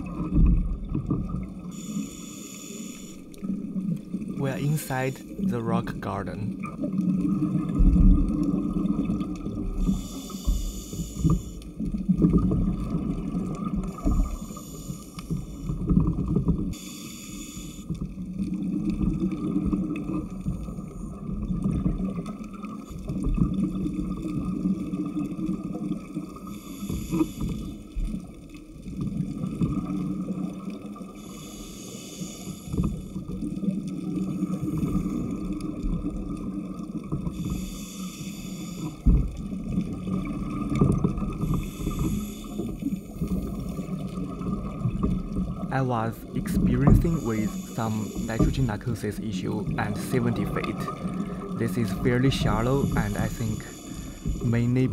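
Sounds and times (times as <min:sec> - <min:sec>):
dive scooter hum: 0:00.0 - 0:54.9
exhaled bubbles gurgling: 0:00.0 - 0:54.9
regulator hissing inhale: 0:01.6 - 0:03.5, 0:09.8 - 0:11.8, 0:13.8 - 0:15.8, 0:16.7 - 0:18.0, 0:26.3 - 0:28.0, 0:31.1 - 0:33.2, 0:37.3 - 0:39.1, 0:41.3 - 0:43.9, 0:47.0 - 0:48.7, 0:52.4 - 0:54.7.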